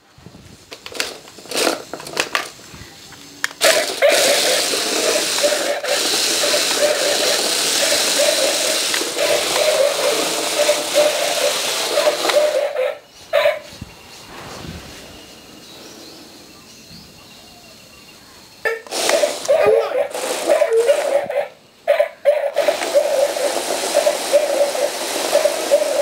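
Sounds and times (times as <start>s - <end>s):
toy motors whirring: 0.7s - 2.6s, 3.5s - 13.0s, 18.7s - 26.0s.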